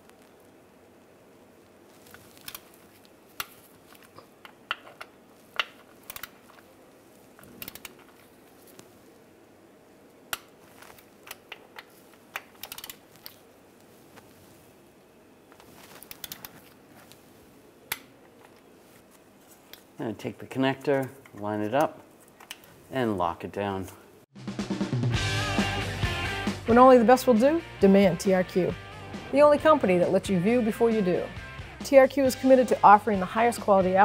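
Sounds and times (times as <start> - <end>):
torque wrench ratcheting clicks: 6.0 - 6.4, 7.6 - 8.0, 12.6 - 13.0.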